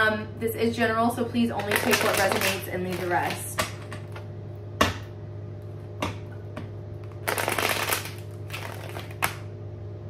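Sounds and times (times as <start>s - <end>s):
cards riffling: 7.2s - 9.4s.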